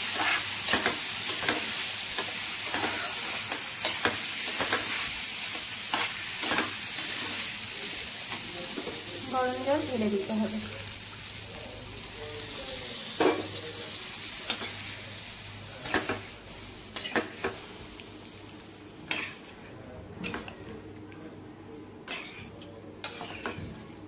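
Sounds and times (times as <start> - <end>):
food sizzling: 0.0 - 21.0
metal spatula scraping pan: 22.1 - 23.6.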